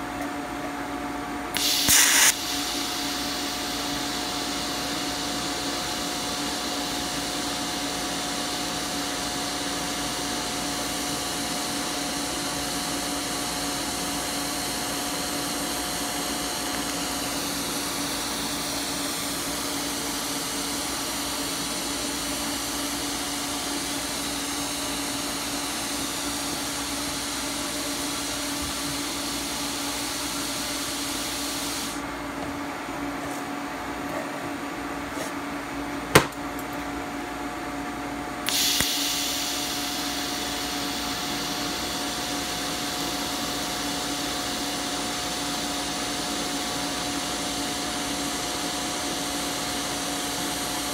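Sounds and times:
welding arc hissing: 1.5s - 9.1s, 38.5s - 44.8s
gas hissing through torch: 1.5s - 19.8s, 28.0s - 32.0s, 38.5s - 45.7s
welder hum: 1.5s - 32.0s, 38.4s - 50.9s.

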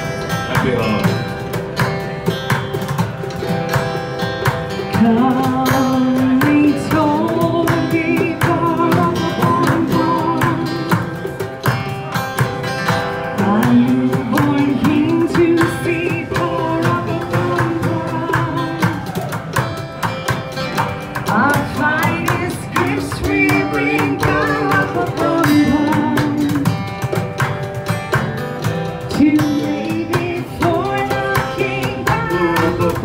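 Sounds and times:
strummed acoustic guitar: 0.0s - 33.0s
woman singing into microphone: 4.9s - 11.3s, 13.3s - 19.4s, 21.2s - 26.9s, 29.1s - 33.0s.

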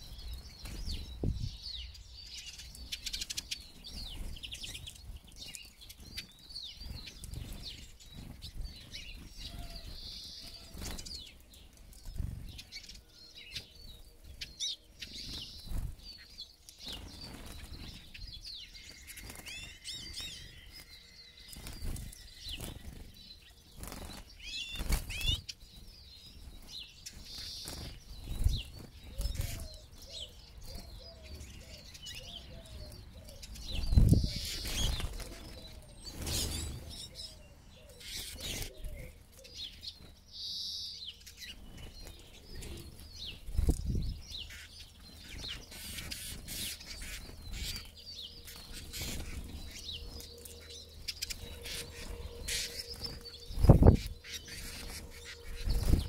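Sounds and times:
birds chirping and twittering: 0.0s - 56.0s
birds wing flapping: 2.8s - 12.9s, 15.0s - 16.2s, 16.8s - 20.9s, 21.5s - 29.7s, 33.6s - 36.9s, 41.3s - 56.0s.

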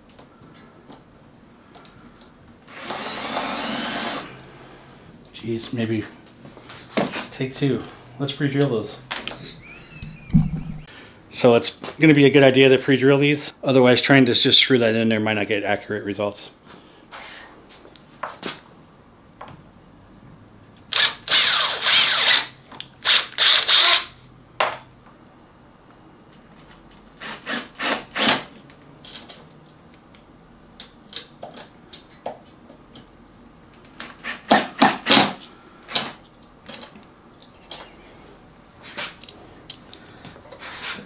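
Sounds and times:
cordless drill boring into wood: 2.7s - 4.6s, 20.9s - 24.1s, 27.2s - 28.4s.

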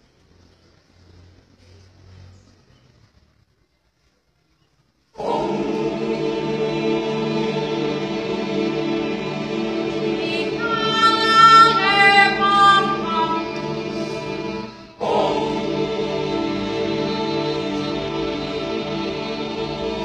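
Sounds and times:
choir singing: 5.2s - 20.0s.

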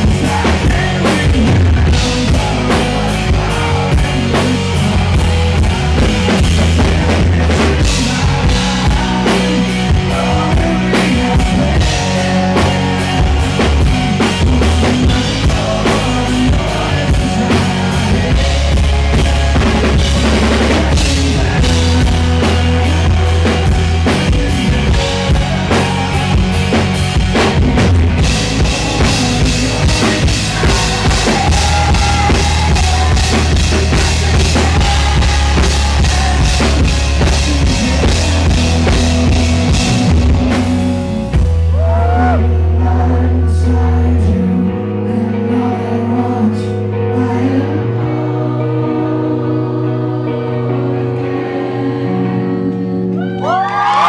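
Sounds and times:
drum kit beat: 0.0s - 42.4s
man singing: 0.0s - 54.0s
rock band playing: 0.0s - 54.0s.

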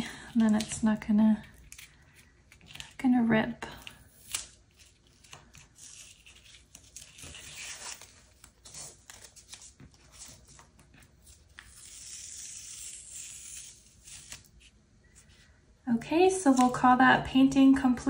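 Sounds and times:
masking tape peeling off paper: 4.1s - 14.7s.

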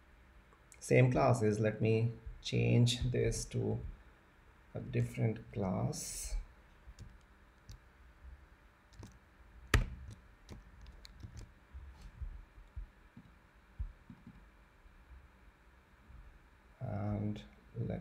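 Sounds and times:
keyboard and mouse clicks: 8.9s - 11.5s.

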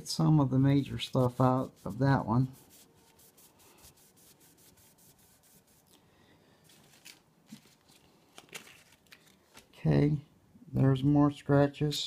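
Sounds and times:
sandpaper rubbing on metal: 0.6s - 5.8s.

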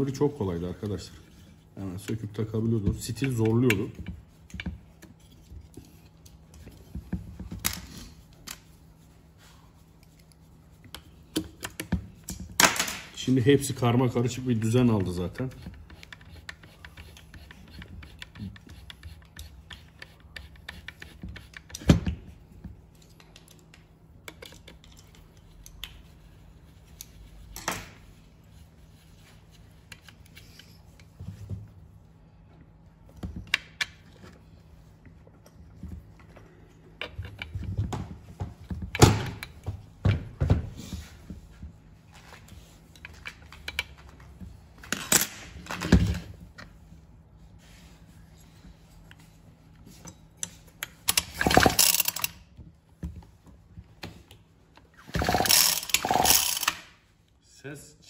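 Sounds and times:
tools clicking and knocking: 22.9s - 26.0s, 42.9s - 44.2s, 50.0s - 52.4s, 55.2s - 56.9s.

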